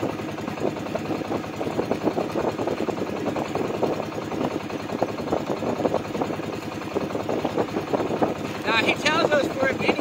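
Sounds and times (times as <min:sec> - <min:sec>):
boat engine running: 0:00.0 - 0:10.0.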